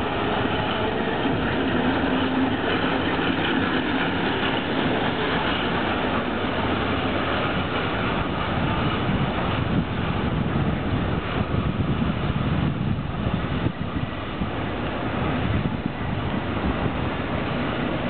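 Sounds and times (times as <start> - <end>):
tram wheels rumbling on rails: 0.0 - 18.0.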